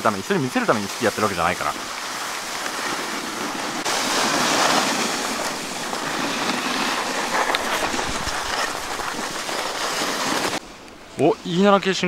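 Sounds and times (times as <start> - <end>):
skis scraping over snow: 0.0 - 10.6
wind on microphone: 3.5 - 10.6.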